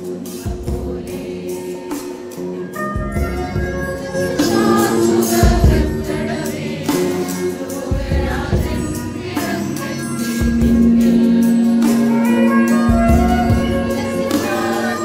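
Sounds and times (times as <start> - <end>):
instrumental accompaniment: 0.0 - 15.0
women's choir singing: 0.0 - 15.0
low beat: 7.9 - 15.0.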